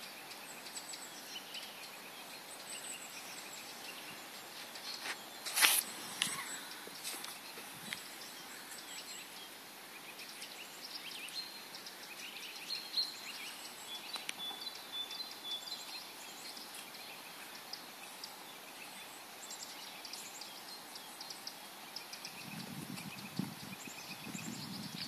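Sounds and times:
faint steady hiss: 0:00.0 - 0:25.0
songbirds chirping and trilling: 0:00.0 - 0:25.0.

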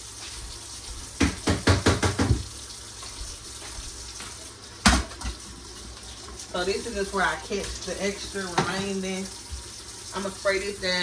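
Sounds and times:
faucet running into steel sink: 0:00.0 - 0:11.0
knocks in sink: 0:01.2 - 0:02.6, 0:04.8 - 0:05.4, 0:08.5 - 0:08.8.

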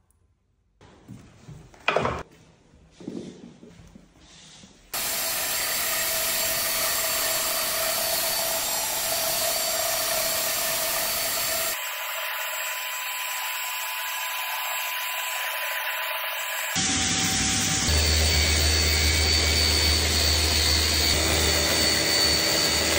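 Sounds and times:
floor sanding machine grinding: 0:04.9 - 0:22.9.

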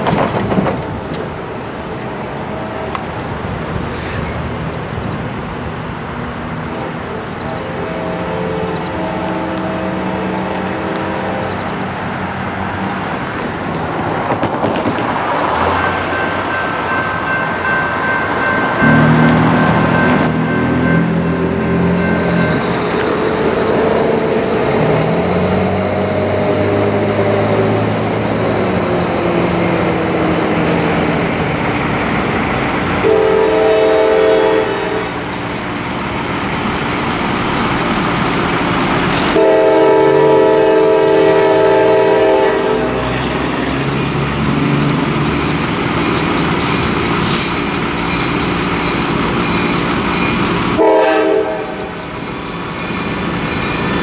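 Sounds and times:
diesel locomotive engine running: 0:00.0 - 0:54.0
train wheels rolling on rails: 0:00.0 - 0:54.0
train air horn blasts: 0:06.7 - 0:11.8, 0:18.8 - 0:22.8, 0:33.0 - 0:35.2, 0:39.3 - 0:43.1, 0:50.8 - 0:51.9.

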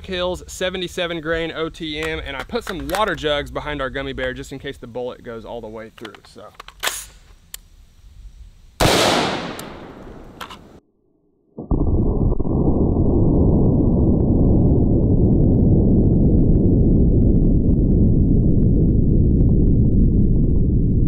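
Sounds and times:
steady low rumble: 0:07.5 - 0:10.8, 0:11.6 - 0:21.0
gunshot with echo: 0:08.8 - 0:10.4.

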